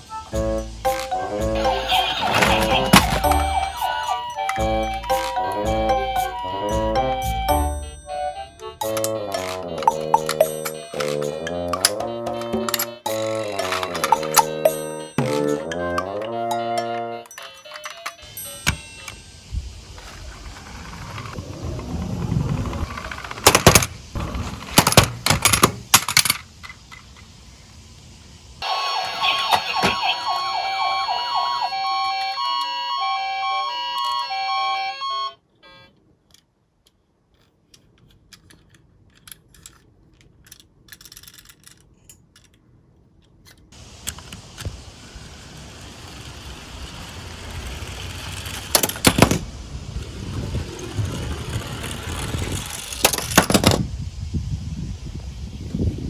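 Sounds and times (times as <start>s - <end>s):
electronic jingle: 0.4s - 17.3s
toy car rolling down wooden board: 0.9s - 19.2s, 20.0s - 27.2s, 45.6s - 53.9s
toy cars clicking when handled: 1.8s - 6.4s, 7.4s - 19.2s, 24.7s - 27.3s, 36.2s - 44.8s, 45.8s - 49.4s, 50.7s - 53.8s.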